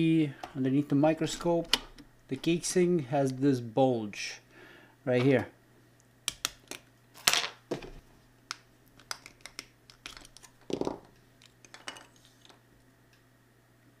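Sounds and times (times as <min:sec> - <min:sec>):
plastic casing clicking and crackling: 0:08.5 - 0:10.5.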